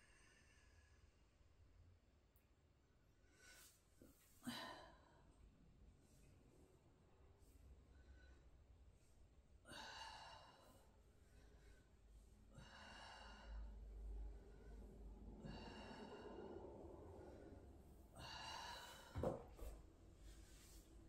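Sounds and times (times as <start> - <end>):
person breathing deeply: 9.6 - 19.2.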